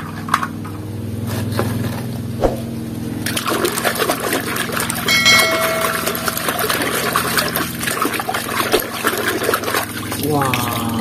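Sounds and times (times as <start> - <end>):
water sloshing and splashing: 2.4 - 11.0.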